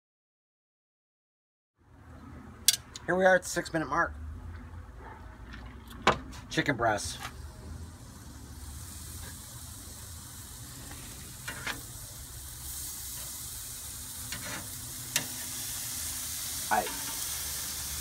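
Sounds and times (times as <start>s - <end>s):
chicken sizzling on grill: 6.5s - 18.0s.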